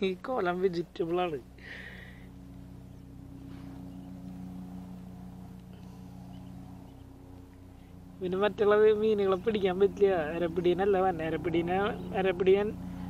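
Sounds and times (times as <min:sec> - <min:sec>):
motor droning hum: 0:00.0 - 0:13.0.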